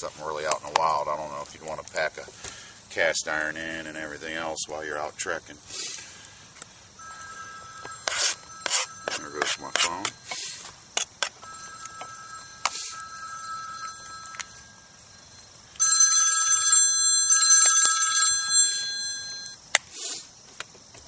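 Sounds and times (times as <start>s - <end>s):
phone ringtone: 7.0s - 10.4s, 11.4s - 19.6s.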